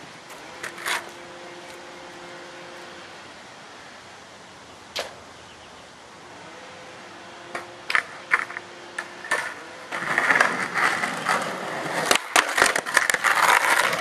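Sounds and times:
skateboard trucks grinding on ledge: 0:00.0 - 0:03.0, 0:06.3 - 0:14.0
skateboard wheels rolling on concrete: 0:00.0 - 0:14.0
skateboard clacks: 0:00.3 - 0:01.1, 0:07.5 - 0:14.0
skateboard pops and knocks: 0:07.6 - 0:14.0.

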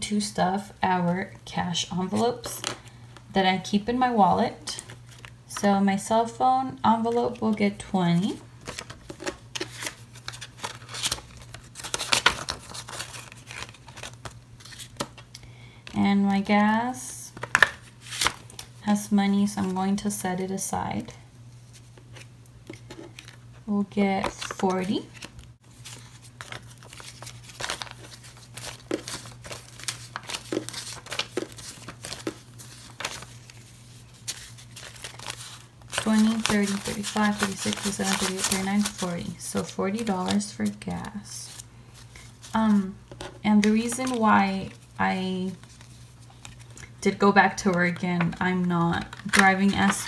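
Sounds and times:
paper banknotes rustling: 0:07.0 - 0:15.3, 0:24.0 - 0:50.0.

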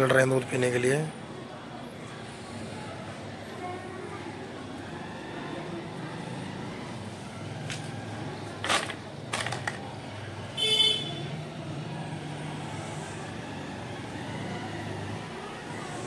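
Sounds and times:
road traffic hum: 0:00.0 - 0:16.0
vehicle horn toot: 0:10.6 - 0:11.3.

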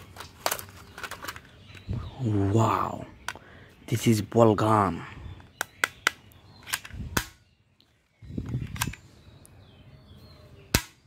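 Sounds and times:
handling rustle: 0:00.0 - 0:01.9.

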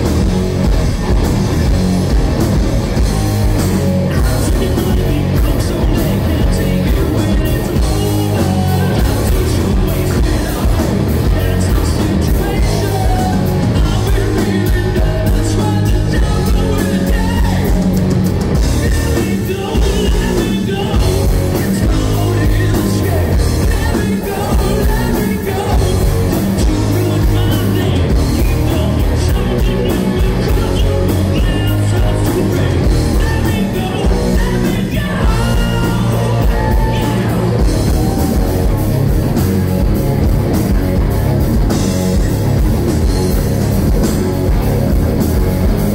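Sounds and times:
live rock band playing: 0:00.0 - 0:45.9
lead singer singing: 0:04.0 - 0:18.0, 0:18.6 - 0:38.8.

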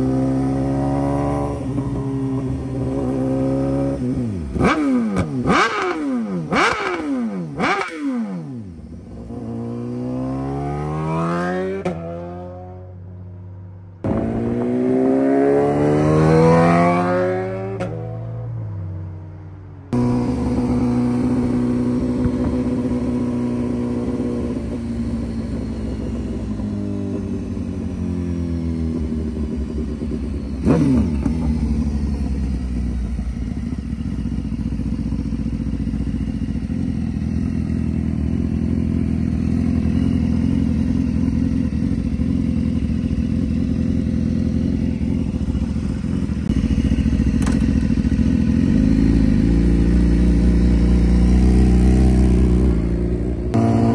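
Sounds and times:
motorcycle engine revving: 0:00.0 - 0:53.9
sharp engine rev: 0:02.8 - 0:12.8, 0:45.4 - 0:53.9.

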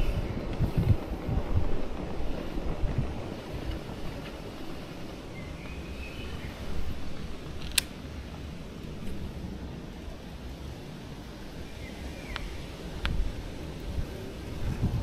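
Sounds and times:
wind rushing over microphone: 0:00.0 - 0:15.0
sharp click: 0:07.6 - 0:07.9.

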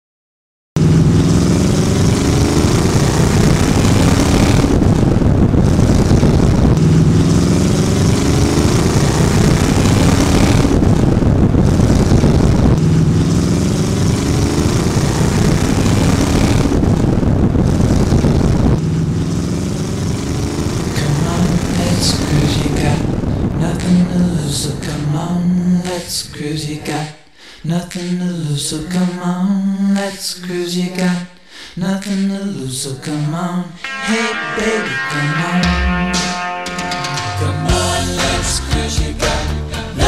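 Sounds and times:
car engine revving: 0:00.8 - 0:27.1.

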